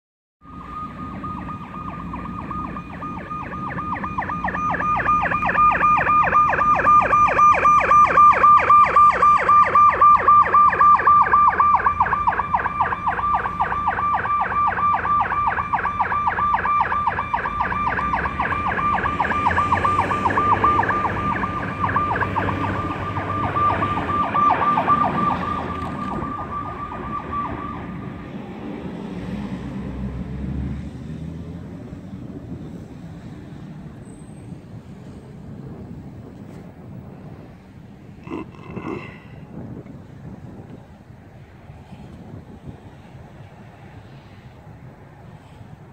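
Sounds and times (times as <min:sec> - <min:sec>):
fire truck siren warbling: 0:00.4 - 0:30.2
truck engine rumble: 0:00.4 - 0:45.9.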